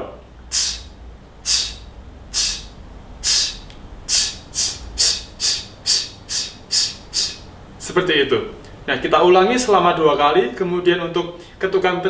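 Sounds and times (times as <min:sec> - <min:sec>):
man hissing through teeth: 0:00.5 - 0:07.5.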